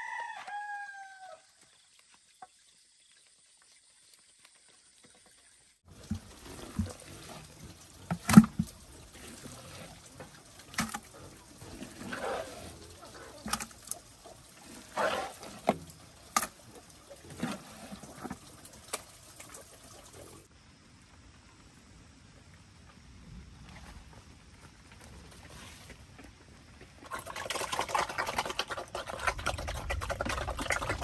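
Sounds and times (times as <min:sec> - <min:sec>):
mash sloshing and splashing: 0:05.9 - 0:19.0, 0:27.1 - 0:31.0.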